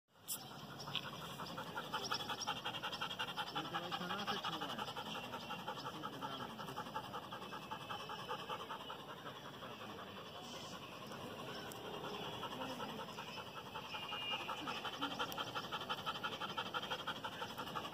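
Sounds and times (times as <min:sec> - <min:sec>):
dog panting quickly: 0:00.2 - 0:17.9.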